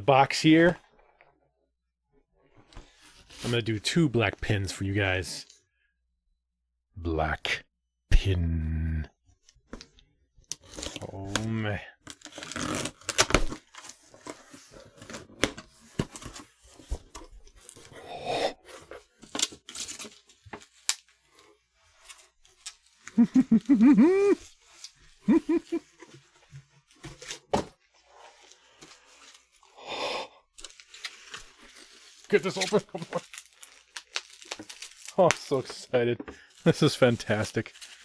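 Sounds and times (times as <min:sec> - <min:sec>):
man humming: 0:08.3 - 0:09.1, 0:23.2 - 0:24.5, 0:25.3 - 0:25.8
packing tape tearing: 0:12.1 - 0:14.4, 0:30.6 - 0:35.7
bubble wrap crinkling: 0:30.6 - 0:38.0.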